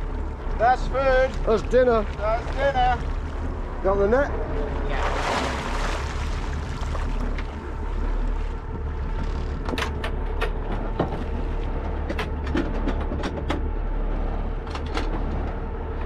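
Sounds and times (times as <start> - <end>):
boat engine rumbling: 0.0 - 16.0
sharp clicks and knocks: 9.2 - 13.7.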